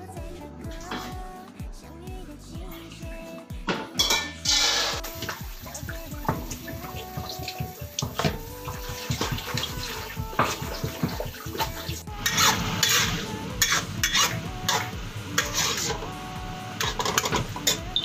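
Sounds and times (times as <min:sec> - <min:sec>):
oil hissing in wok: 0:04.5 - 0:11.6
running tap water: 0:04.7 - 0:16.0
water splashing in basin: 0:05.0 - 0:12.1
metal spatula scraping pan: 0:10.5 - 0:16.0.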